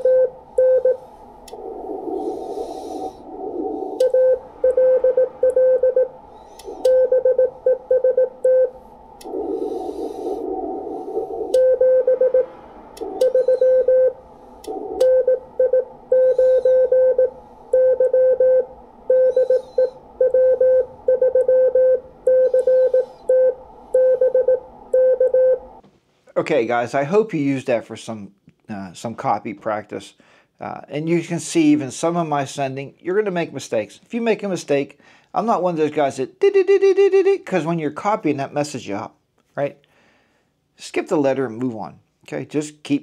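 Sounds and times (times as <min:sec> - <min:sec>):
morse code beeps: 0:00.0 - 0:01.0, 0:04.0 - 0:06.1, 0:06.7 - 0:08.8, 0:13.2 - 0:14.2, 0:15.0 - 0:25.6
radio hiss: 0:00.0 - 0:12.4.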